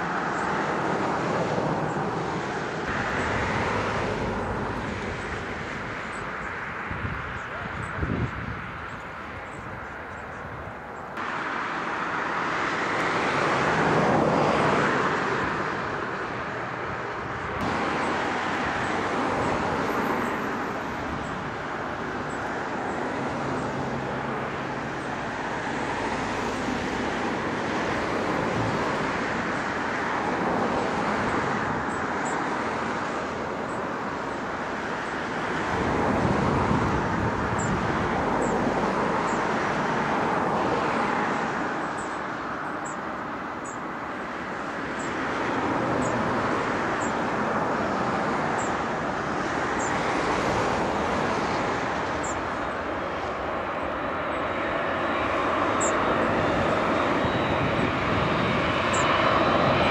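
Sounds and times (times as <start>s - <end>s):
jet engine roar: 0.0s - 59.9s.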